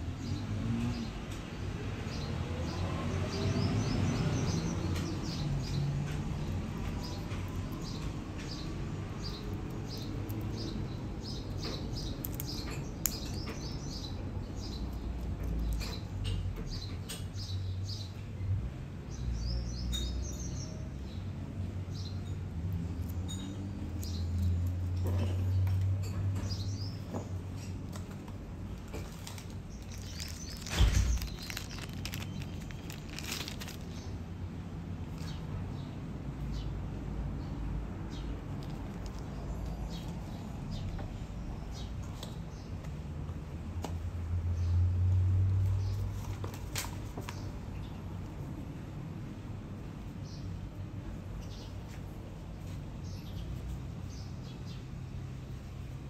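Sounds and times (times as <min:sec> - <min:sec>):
packaging rustling: 0:28.7 - 0:34.1, 0:38.5 - 0:39.3
material squeaking: 0:28.9 - 0:34.0.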